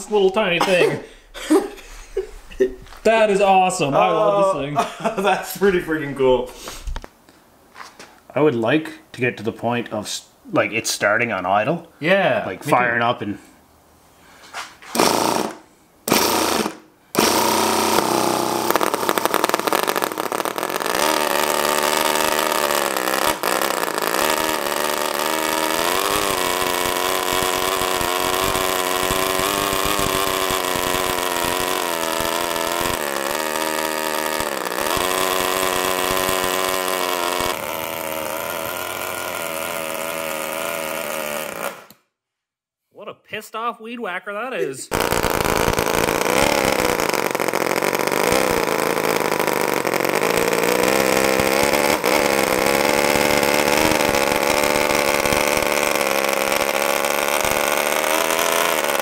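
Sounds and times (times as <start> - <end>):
small engine running at high revs: 15.0 - 42.0, 44.9 - 59.0.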